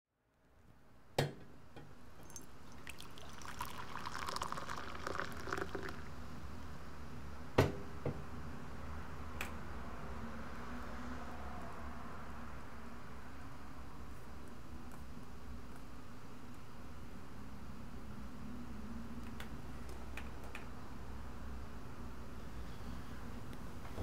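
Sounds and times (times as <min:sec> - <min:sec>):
coffee pouring into a mug: 0:02.2 - 0:06.2
objects knocking on a counter: 0:07.6 - 0:08.2.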